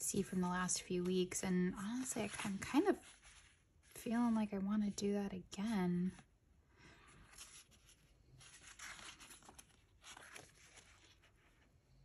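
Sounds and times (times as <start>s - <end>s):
paper sheets rustling: 7.3s - 11.7s.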